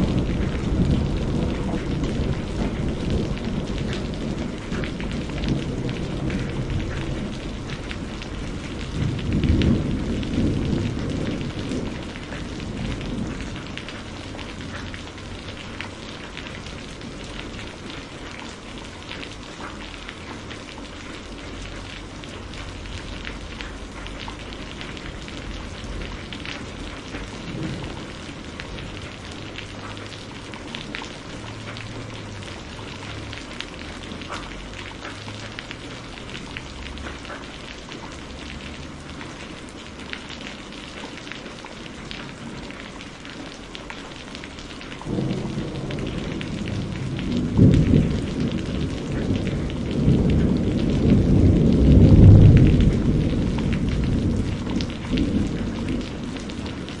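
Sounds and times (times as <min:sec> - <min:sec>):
thunder rolling: 0:00.0 - 0:18.3, 0:22.3 - 0:33.4, 0:45.0 - 0:57.0
close raindrop ticks: 0:00.0 - 0:57.0
heavy rain on foliage: 0:00.0 - 0:57.0.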